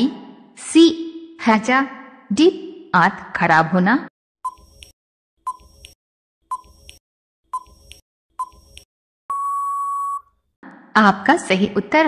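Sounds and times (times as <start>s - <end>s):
long steady beep: 9.3s - 10.3s.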